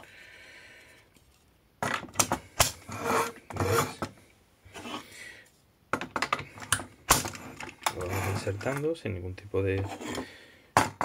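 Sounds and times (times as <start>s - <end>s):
scraping and rubbing: 2.8s - 4.1s, 4.7s - 5.1s, 7.2s - 8.9s, 9.7s - 10.4s.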